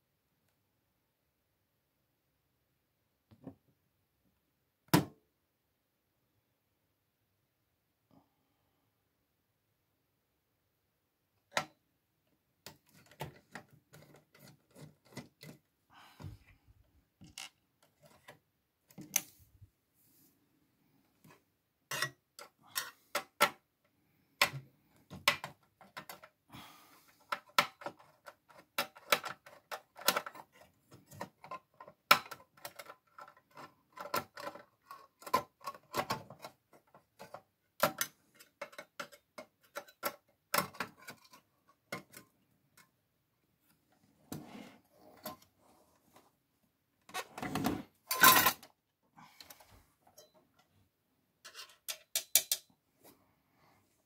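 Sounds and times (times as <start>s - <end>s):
clattering handling noise: 47.1s - 48.8s, 51.4s - 52.7s.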